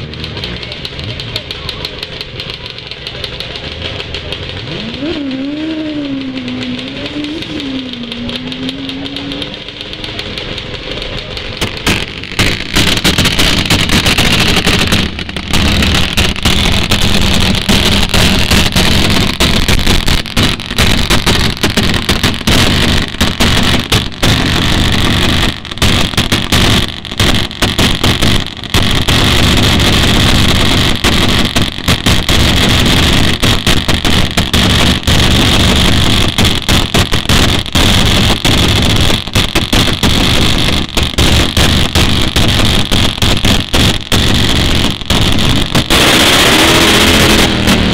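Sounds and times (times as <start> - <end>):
motorcycle engine running: 0.0 - 47.9.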